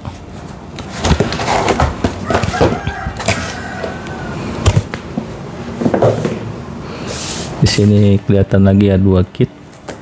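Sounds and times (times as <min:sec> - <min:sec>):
boxes knocking scraping and rustling: 0:00.0 - 0:04.0, 0:04.6 - 0:07.4.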